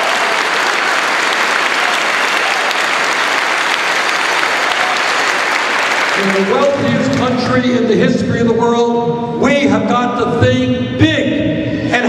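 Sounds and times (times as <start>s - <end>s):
large audience applauding: 0.0s - 7.6s.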